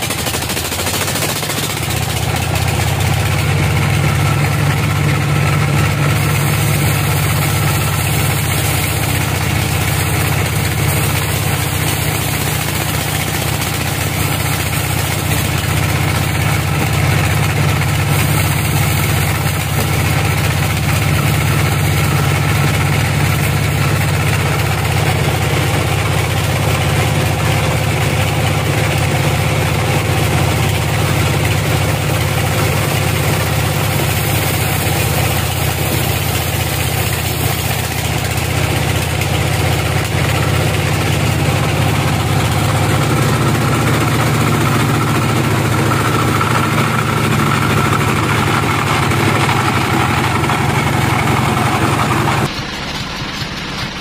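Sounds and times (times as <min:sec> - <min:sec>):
sawmill motor humming: 0:00.0 - 0:54.0.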